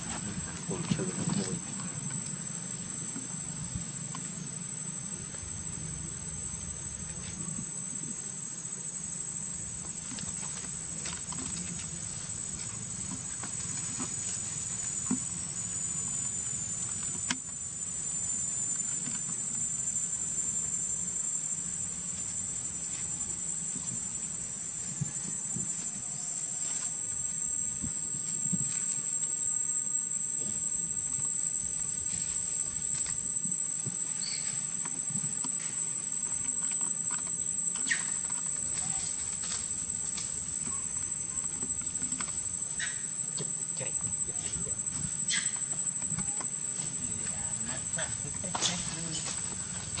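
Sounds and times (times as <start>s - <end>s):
chorus of insects: 0.0s - 50.0s.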